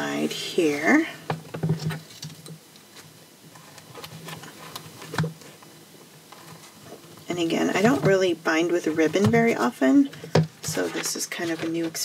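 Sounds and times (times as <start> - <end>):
paper rustling: 10.7 - 12.0.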